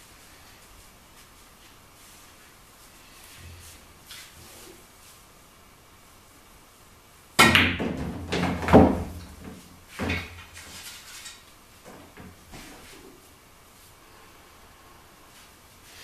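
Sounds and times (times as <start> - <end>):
pool cue striking ball: 7.4 - 10.3.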